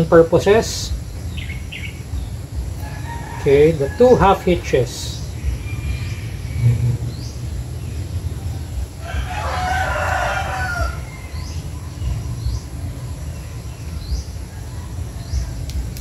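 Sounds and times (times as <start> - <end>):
small birds chirping: 0.0 - 16.0
rooster crowing: 2.8 - 4.8, 8.9 - 12.0.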